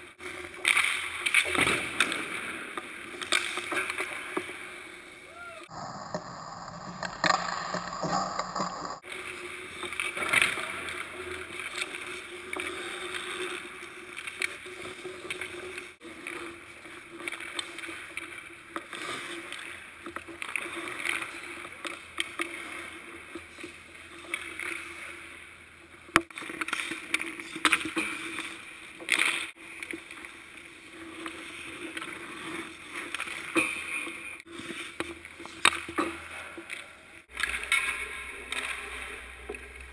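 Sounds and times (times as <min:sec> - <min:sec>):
skate blades scraping ice: 0:00.2 - 0:25.6, 0:26.2 - 0:39.9
sticks shooting pucks: 0:00.4 - 0:04.5, 0:34.9 - 0:39.9.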